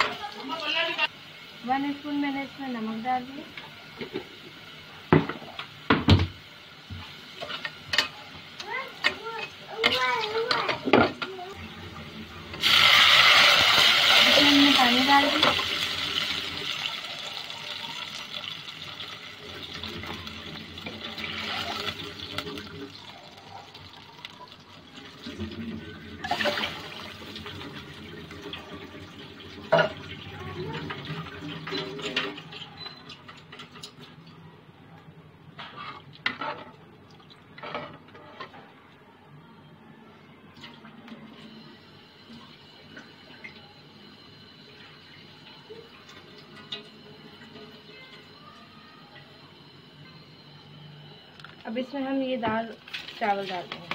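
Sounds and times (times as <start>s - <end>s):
oil sizzling and bubbling in pot: 0.0s - 39.1s, 40.7s - 53.9s
water gurgling in a pot: 8.6s - 33.4s.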